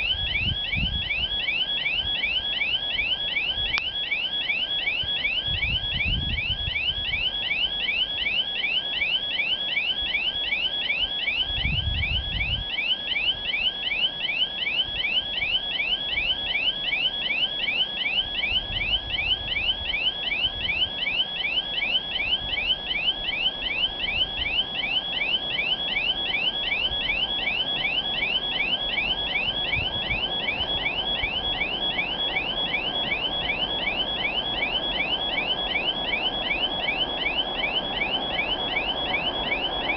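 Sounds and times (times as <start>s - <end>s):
wind thumps on microphone: 11.6s - 12.6s.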